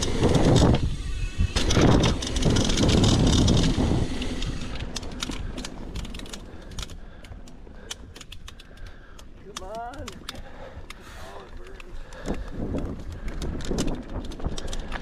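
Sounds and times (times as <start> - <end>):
bike ticks and rattles: 0.0 - 15.0
bike tyre and trail noise: 0.0 - 15.0
wind buffeting microphone: 0.0 - 15.0.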